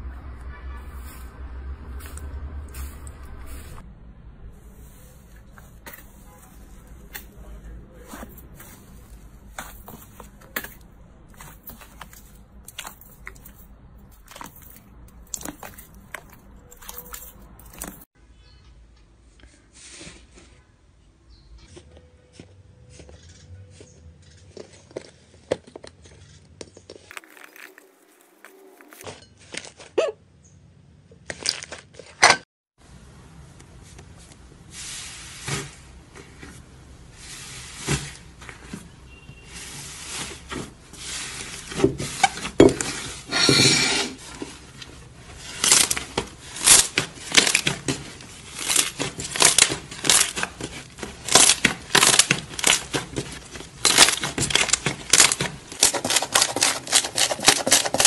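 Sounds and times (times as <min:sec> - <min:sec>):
slime squishing and crackling: 0:27.1 - 0:29.0, 0:45.2 - 0:58.0.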